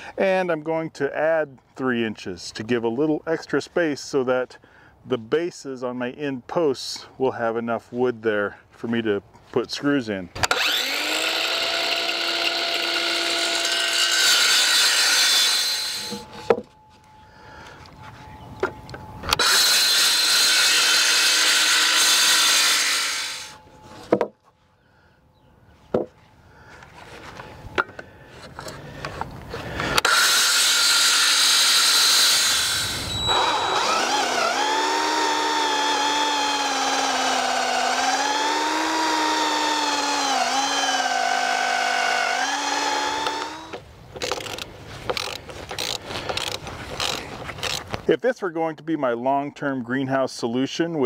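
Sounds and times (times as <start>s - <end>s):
cordless drill running: 10.4s - 16.4s, 19.3s - 23.6s, 30.0s - 44.6s
circular saw cutting wood: 10.4s - 16.5s, 19.3s - 24.1s, 30.0s - 43.8s.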